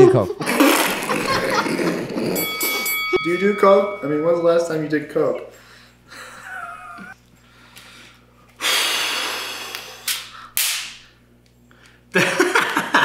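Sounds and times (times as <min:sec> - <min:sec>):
man hissing breath through teeth: 0:08.6 - 0:10.4.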